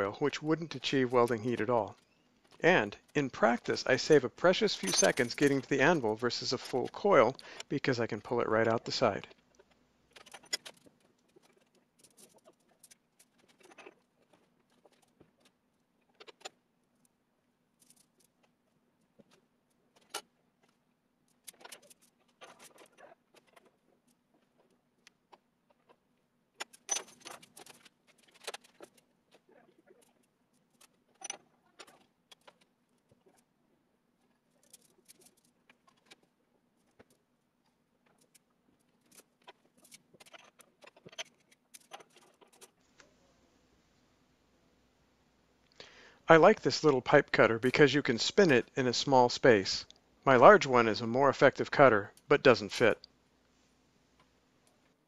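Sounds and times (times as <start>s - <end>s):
copper tubing clinking and scraping: 0.8s - 7.4s
faint steady hum: 30.0s - 55.0s.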